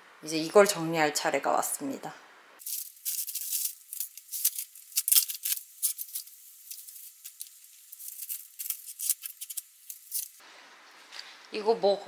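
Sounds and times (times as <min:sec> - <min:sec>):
plastic packaging crinkling: 0:02.6 - 0:10.4.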